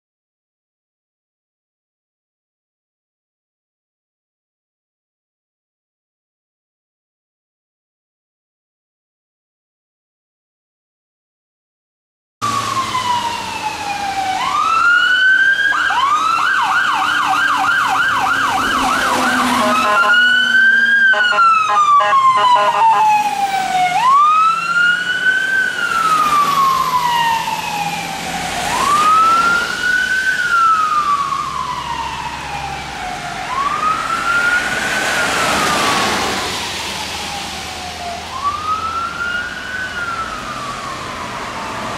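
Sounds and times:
siren wailing: 12.4 - 41.9
siren yelping: 12.4 - 41.9.

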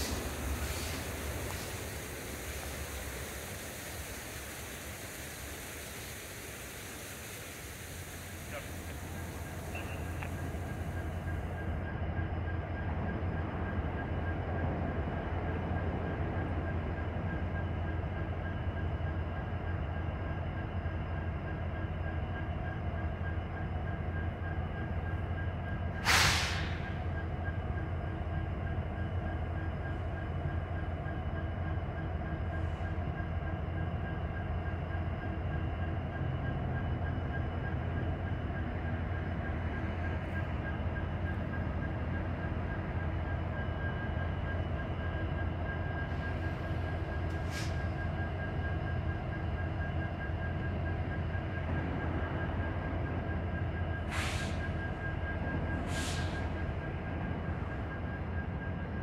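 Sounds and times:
loud air hiss: 0.0 - 10.8, 26.0 - 26.9, 54.1 - 54.6
diesel locomotives idling: 0.0 - 59.0.

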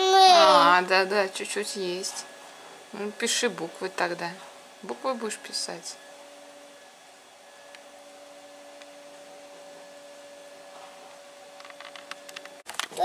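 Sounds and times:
small electric motor humming: 0.0 - 12.6.

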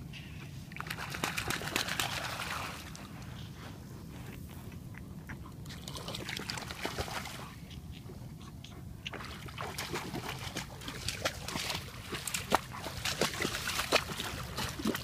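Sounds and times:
dog steps splashing in water: 0.8 - 3.1, 5.7 - 8.1, 9.0 - 15.0.

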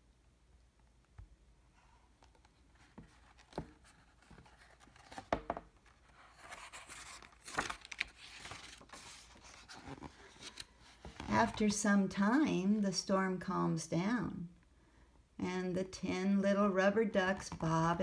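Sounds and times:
paper page rustling: 2.2 - 11.7.

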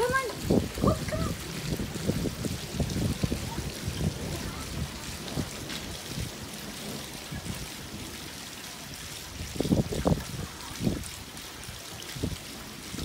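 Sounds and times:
trickle of running water: 0.0 - 13.0.

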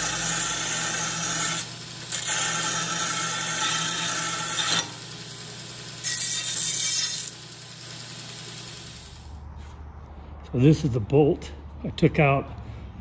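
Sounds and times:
steel bar grinding on belt: 0.0 - 9.3
belt sander motor hum: 0.0 - 9.4.

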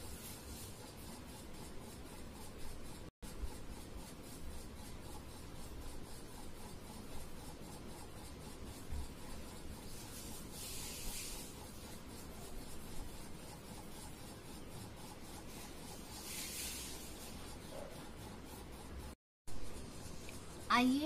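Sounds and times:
scratchy shading on paper: 0.0 - 21.0.

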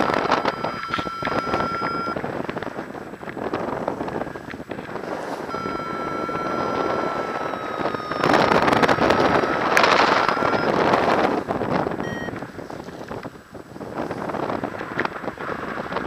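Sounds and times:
wind rushing over microphone: 0.0 - 16.0
thin steady whistle: 5.5 - 10.8.

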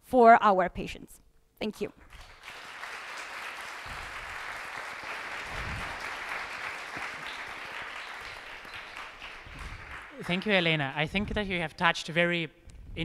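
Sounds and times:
audience applauding: 2.1 - 11.0.

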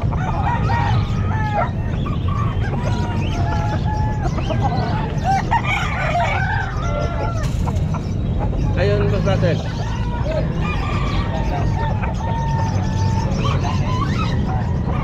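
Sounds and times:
roosters crowing: 0.0 - 15.0
steady low rumble: 0.0 - 15.0.

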